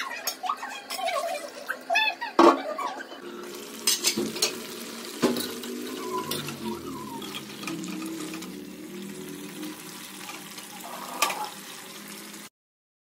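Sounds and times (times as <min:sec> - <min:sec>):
curry hissing while cooking: 0:00.2 - 0:12.5
metal spoon scraping a pan: 0:03.7 - 0:08.7, 0:09.7 - 0:11.8.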